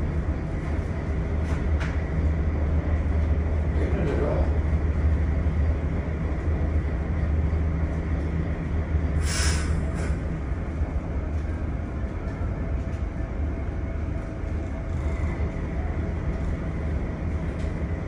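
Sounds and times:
low engine rumble: 0:00.0 - 0:18.0
brief hiss: 0:09.2 - 0:10.2.

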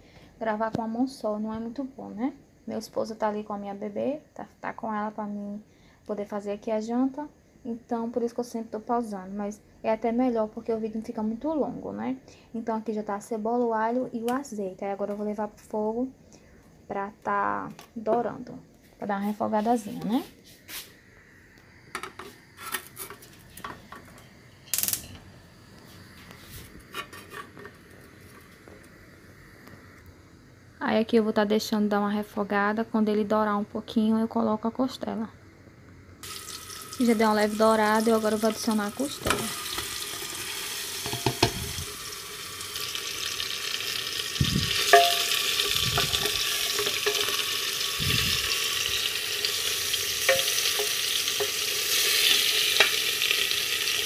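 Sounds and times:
meat sizzling in hot oil: 0:36.2 - 0:54.0
metal clatter of pressure cooker: 0:41.0 - 0:41.7, 0:44.8 - 0:47.5, 0:50.2 - 0:53.0
metal spoon clinking on pot: 0:44.8 - 0:47.4, 0:50.2 - 0:51.6.

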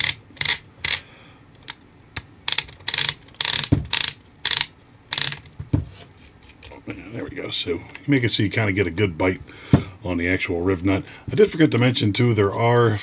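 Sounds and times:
hand tool ratchet clicking: 0:00.0 - 0:01.0, 0:02.5 - 0:05.5.

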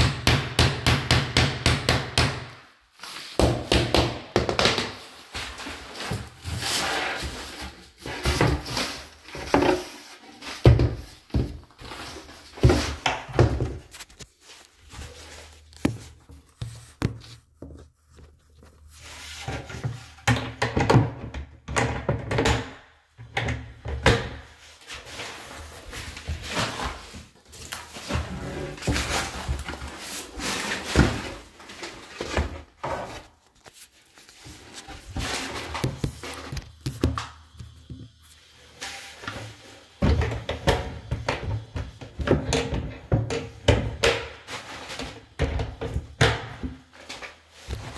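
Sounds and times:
knocks and thuds on cabinet: 0:00.0 - 0:02.5, 0:03.4 - 0:04.9, 0:12.6 - 0:13.9.

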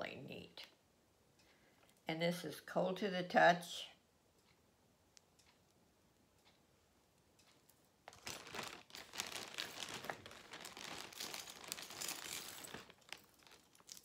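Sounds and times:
bag crinkling: 0:08.0 - 0:14.0.

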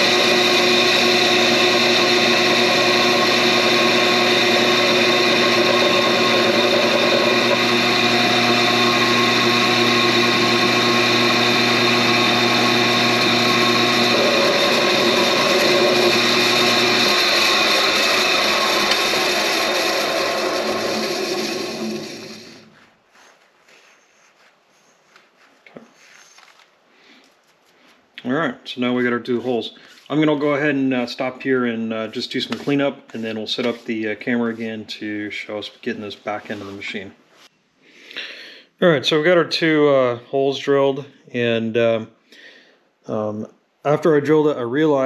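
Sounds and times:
drill press motor hum: 0:00.0 - 0:22.8.

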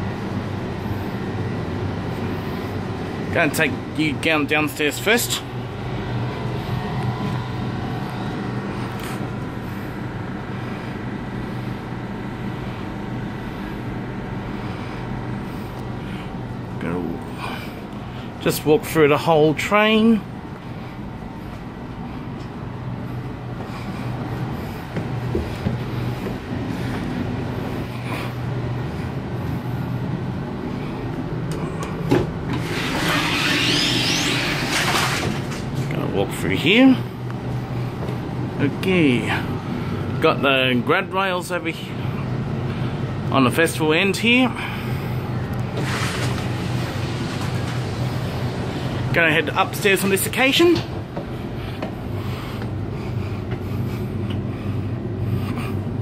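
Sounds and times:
train equipment humming: 0:00.0 - 0:56.0
sliding door opening with whine: 0:31.4 - 0:36.1, 0:45.6 - 0:49.8.

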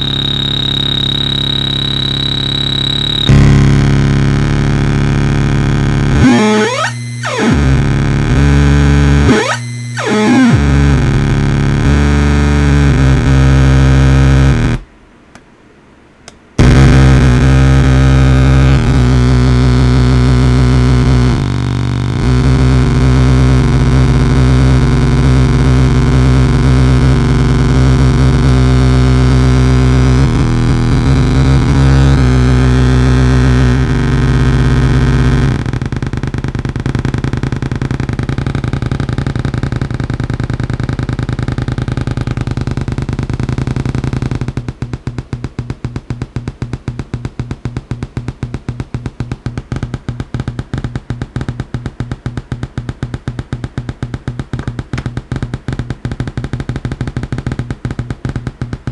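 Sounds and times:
harsh electronic drone: 0:00.0 - 0:14.8, 0:16.6 - 0:47.6.

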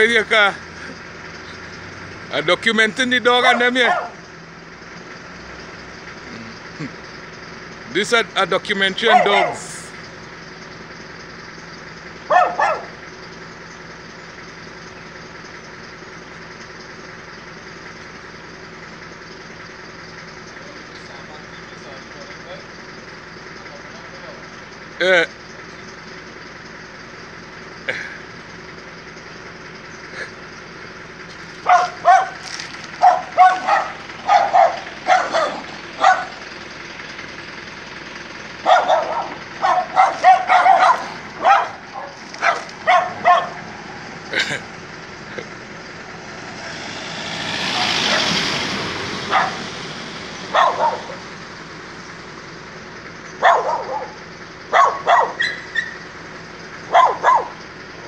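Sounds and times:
dogs barking: 0:03.3 - 0:04.4, 0:08.9 - 0:10.0, 0:12.1 - 0:13.1, 0:31.4 - 0:37.4, 0:38.2 - 0:46.9, 0:47.6 - 0:52.1, 0:53.2 - 0:58.0
vehicle passing by: 0:31.3 - 0:57.6.

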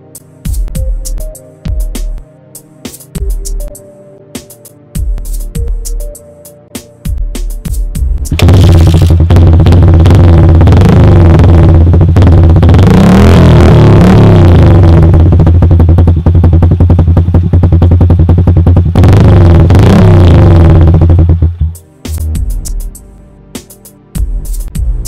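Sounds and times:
motorcycle engine revving: 0:08.2 - 0:21.8.

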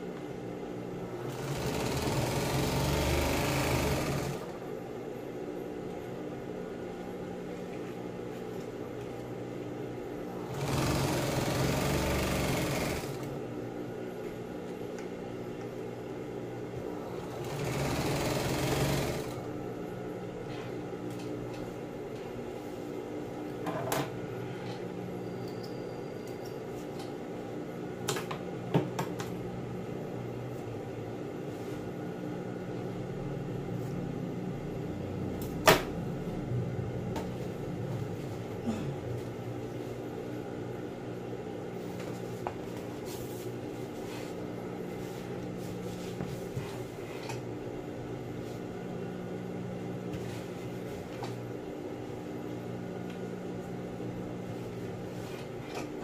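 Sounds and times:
sewing machine humming: 0:01.0 - 0:04.7, 0:10.3 - 0:13.5, 0:16.7 - 0:19.6
sewing machine stitching: 0:01.2 - 0:04.5, 0:10.4 - 0:13.3, 0:17.2 - 0:19.5.

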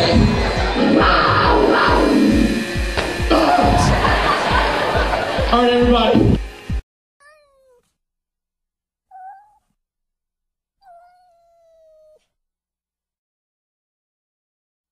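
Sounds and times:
cat meowing: 0:07.2 - 0:07.8, 0:09.1 - 0:09.7, 0:10.8 - 0:12.3.

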